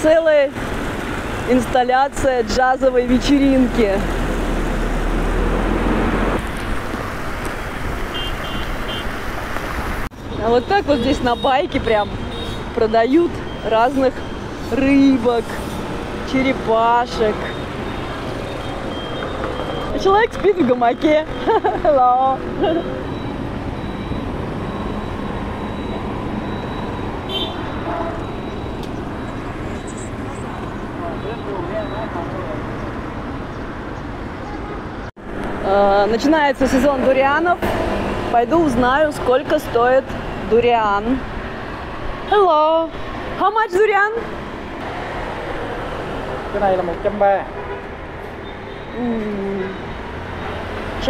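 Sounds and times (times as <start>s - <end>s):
street traffic noise: 0.0s - 51.0s.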